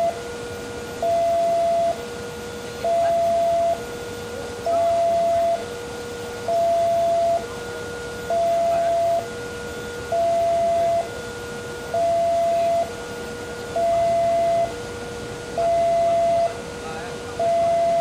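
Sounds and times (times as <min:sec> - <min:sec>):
level crossing warning alarm: 0:00.0 - 0:18.0.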